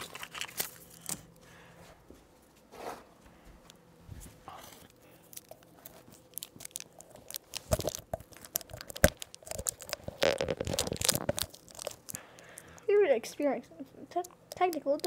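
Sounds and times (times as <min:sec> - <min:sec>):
cloth crunching and rustling: 0:05.8 - 0:12.2.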